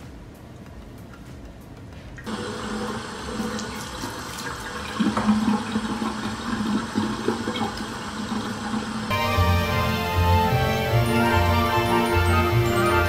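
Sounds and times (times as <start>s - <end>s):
water splashing into sink: 2.3s - 8.9s.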